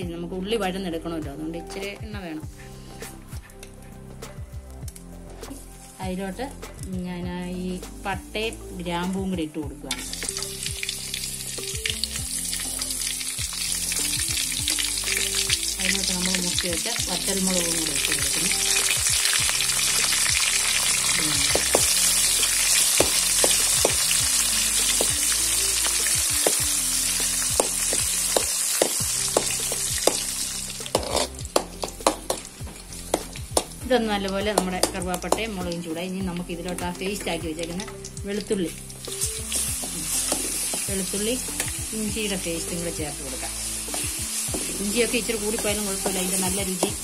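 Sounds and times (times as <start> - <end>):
spices sizzling in hot oil: 2.3 - 47.0
spatula scraping a wok: 30.8 - 32.9.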